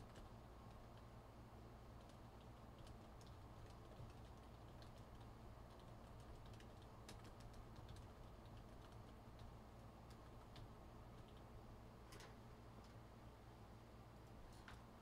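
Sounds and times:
typing on a keyboard: 0.0s - 1.1s, 2.0s - 11.5s
low steady hum: 0.0s - 15.0s.

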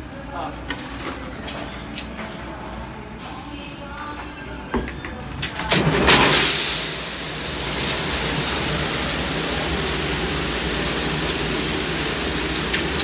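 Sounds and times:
dishwasher water jets spraying: 5.9s - 13.0s.

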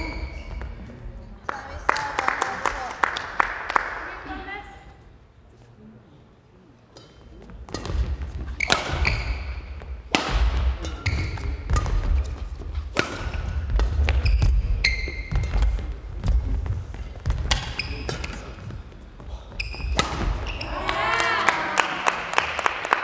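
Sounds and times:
court shoes squeaking: 0.0s - 1.0s, 6.9s - 21.0s
racket striking shuttlecock: 7.0s - 15.7s, 19.8s - 20.7s.

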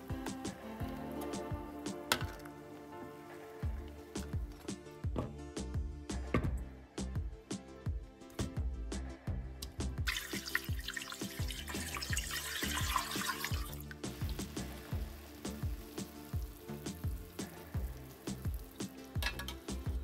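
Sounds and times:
music with steady beat: 0.0s - 20.0s
water running from tap: 10.1s - 20.0s.

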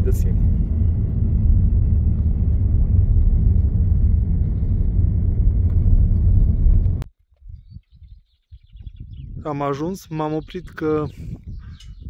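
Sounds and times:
car engine and tyre noise: 0.0s - 7.1s.

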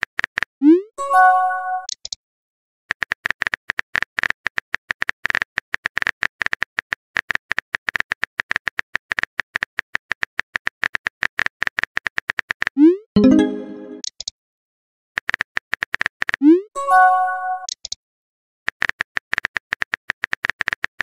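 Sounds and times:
notification chime: 1.0s - 1.9s, 13.2s - 14.0s, 16.8s - 17.7s.

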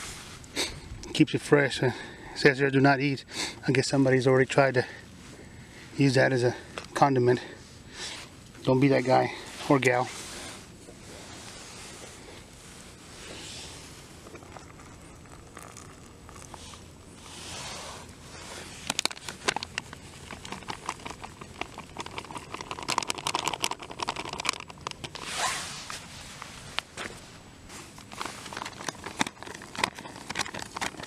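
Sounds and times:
foil pouch crinkling: 11.3s - 31.0s.

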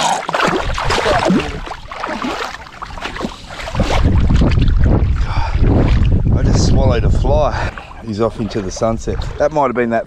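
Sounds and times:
shallow water splashing: 0.0s - 10.0s
wind rumbling on microphone: 0.5s - 9.7s.

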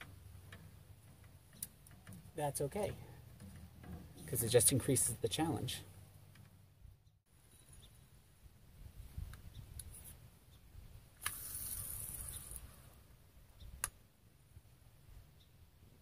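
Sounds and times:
fishing reel ticking: 11.2s - 12.9s.

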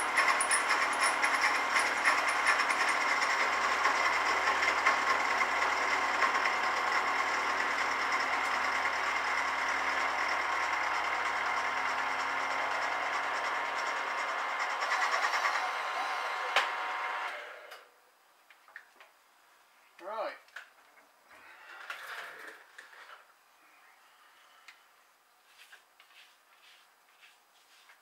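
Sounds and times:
milling machine whine: 0.0s - 17.7s.

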